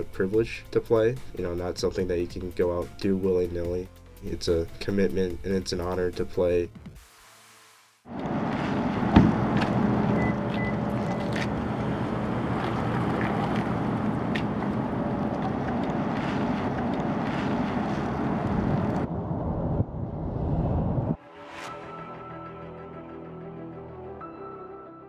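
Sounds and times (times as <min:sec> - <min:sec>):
road noise inside car cabin: 0:08.1 - 0:20.2
rushing road traffic noise: 0:08.1 - 0:20.2.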